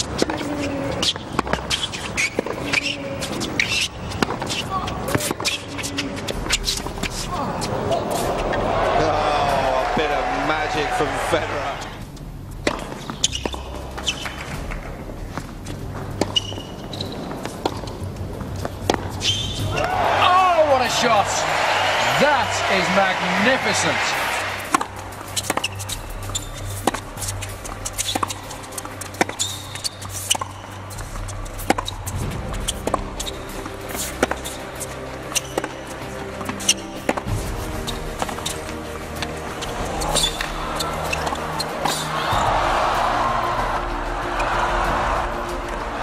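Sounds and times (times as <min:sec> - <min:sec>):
tennis ball bouncing: 0:00.0 - 0:08.6, 0:12.6 - 0:42.5
shoes squeaking on court: 0:00.0 - 0:08.7, 0:11.6 - 0:20.1, 0:20.8 - 0:42.4
background music: 0:00.0 - 0:46.0
tennis racket strikes: 0:22.1 - 0:37.6, 0:39.2 - 0:42.5.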